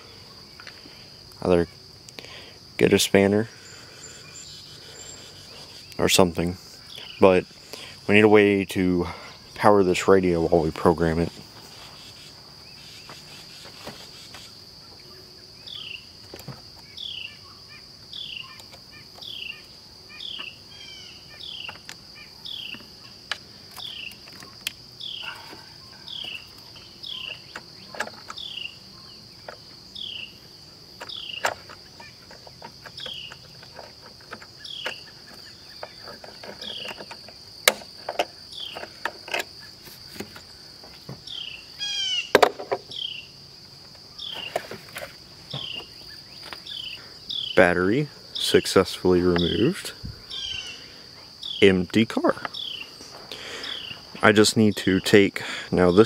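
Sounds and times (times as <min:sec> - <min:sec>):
high-pitched insect drone: 0:00.0 - 0:56.0
bird chirping: 0:03.1 - 0:43.4, 0:44.0 - 0:56.0
tools clicking and knocking: 0:31.0 - 0:39.5.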